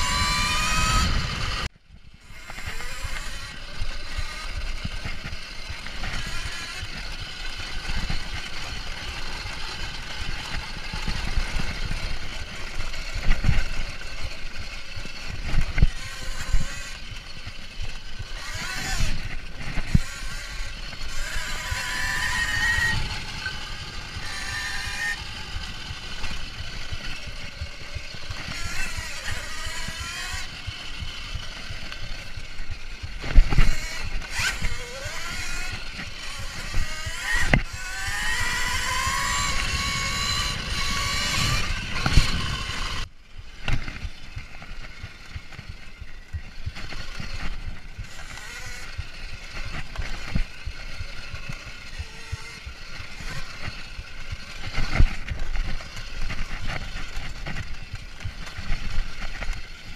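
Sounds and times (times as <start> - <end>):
wind on microphone: 0.0 - 14.3, 15.0 - 59.7
electric motor whine: 0.0 - 59.9.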